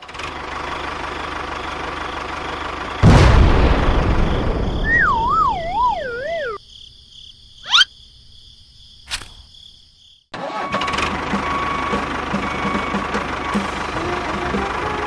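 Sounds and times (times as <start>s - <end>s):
engine running with ticking: 0.0s - 4.8s, 10.6s - 15.0s
cartoon boom: 3.0s - 6.6s
falling wavering whistle: 4.8s - 6.6s.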